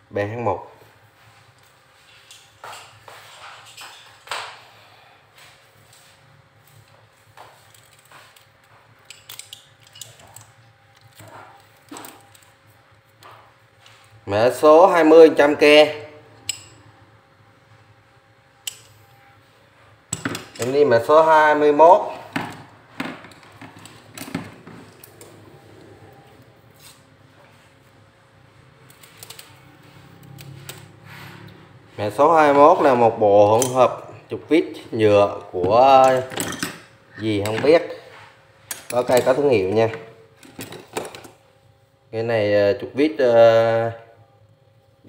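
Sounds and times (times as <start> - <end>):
screwdrivers clicking and clinking: 7.7 - 12.5, 16.4 - 16.8, 18.6 - 19.0, 28.8 - 29.6, 35.9 - 37.7
hand tools knocking and clinking: 35.6 - 37.8.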